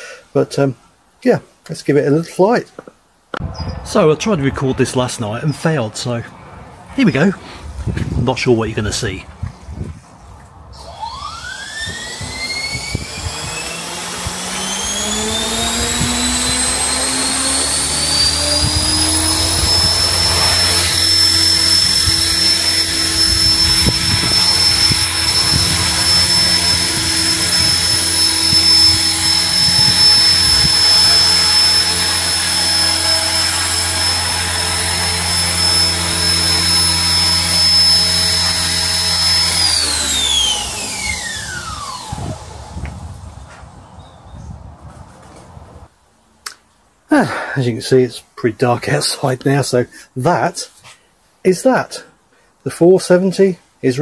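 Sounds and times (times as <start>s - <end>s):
rc helicopter rotor whine: 10.8s - 43.4s.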